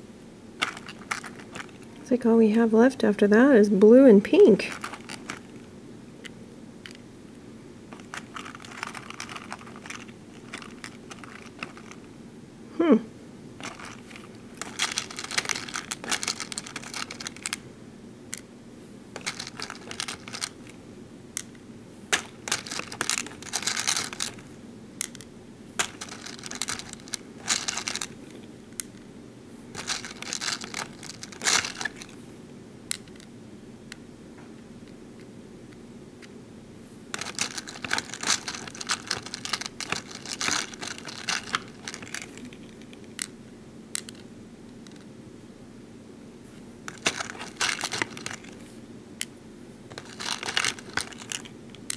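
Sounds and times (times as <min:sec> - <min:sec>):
plastic beads rattling and clicking: 0:00.6 - 0:02.0, 0:04.7 - 0:05.6, 0:07.9 - 0:12.0, 0:13.6 - 0:17.6, 0:19.2 - 0:20.8, 0:21.4 - 0:24.4, 0:25.0 - 0:28.2, 0:29.8 - 0:32.2, 0:37.1 - 0:43.3, 0:46.9 - 0:48.6, 0:49.9 - 0:51.9.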